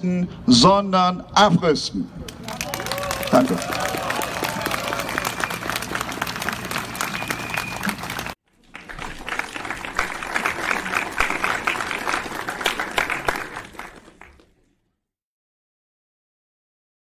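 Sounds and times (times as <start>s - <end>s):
crowd applauding: 2.3s - 14.5s.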